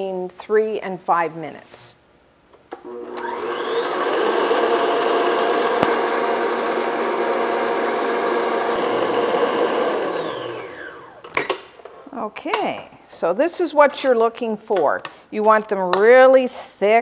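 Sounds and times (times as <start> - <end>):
stand mixer whining: 2.8 - 11.2.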